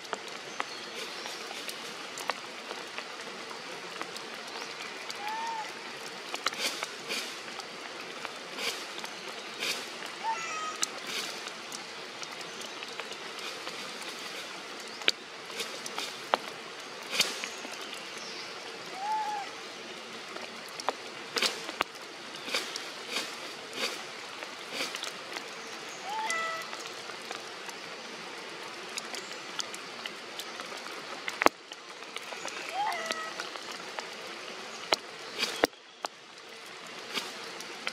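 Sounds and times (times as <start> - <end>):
drips on leaves: 0.0 - 37.9
rain on foliage: 0.0 - 37.9
rising-and-falling calls: 10.2 - 11.3, 18.9 - 19.7, 25.9 - 26.9, 32.5 - 33.6.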